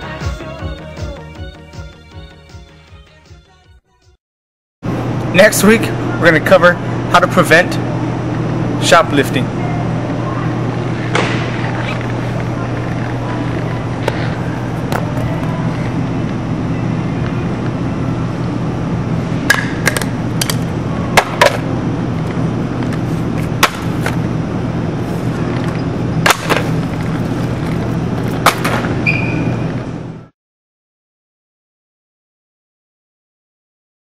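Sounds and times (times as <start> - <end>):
steady background hum: 4.8 - 30.3.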